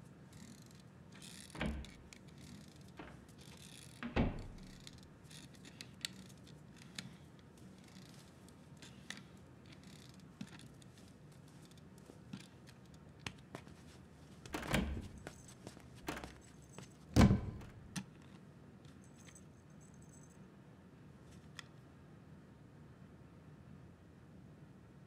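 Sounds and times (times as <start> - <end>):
thump: 17.2 - 17.8.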